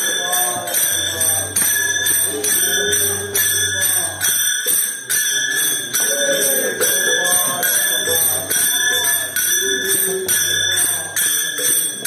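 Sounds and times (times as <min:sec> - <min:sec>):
jingling percussion beat: 0:00.0 - 0:12.0
person singing wavering melody: 0:00.0 - 0:12.0.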